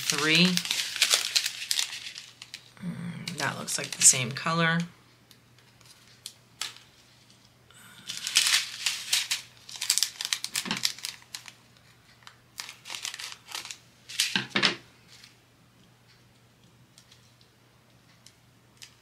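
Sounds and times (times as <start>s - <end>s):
plastic bag crinkling: 0.0s - 2.7s, 3.3s - 4.4s, 8.0s - 11.6s, 12.2s - 14.4s.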